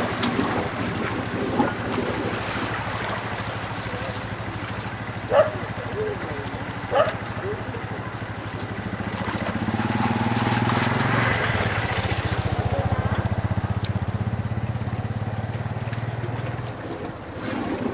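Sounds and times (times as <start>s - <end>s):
wind noise on microphone: 0.0s - 3.4s
engine running with rapid pulse: 0.0s - 17.9s.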